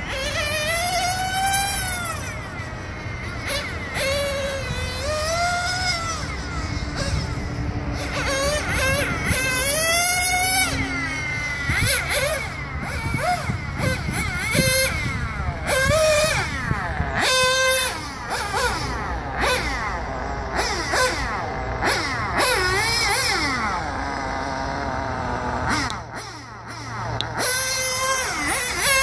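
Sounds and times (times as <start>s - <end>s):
model car engine whining: 0.0s - 29.0s.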